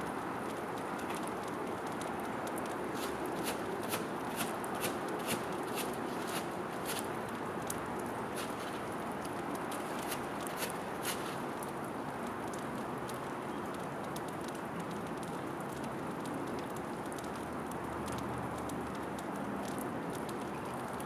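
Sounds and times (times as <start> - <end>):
steady hiss: 0.0 - 12.2
squirrel cracking seeds: 0.8 - 12.6.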